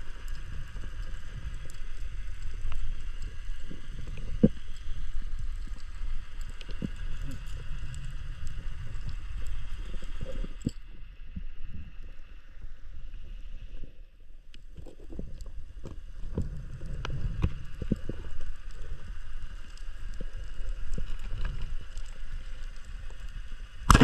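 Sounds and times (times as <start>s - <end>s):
small underwater clicks: 0.0s - 24.0s
underwater rumble: 0.0s - 24.0s.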